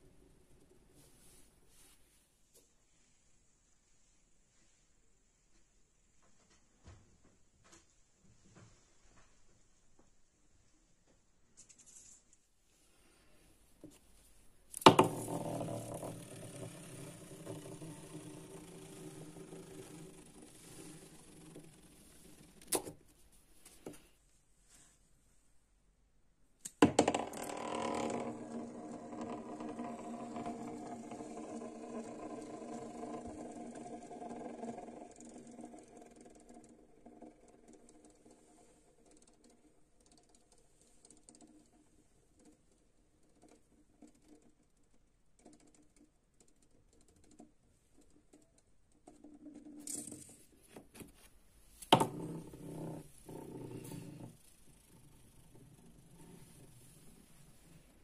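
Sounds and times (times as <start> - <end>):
spinning top tapping down: 14.7 - 23.0, 26.6 - 41.7, 51.8 - 57.8
spinning top whirring: 14.7 - 23.0, 27.0 - 47.4, 49.1 - 50.6, 51.6 - 58.0.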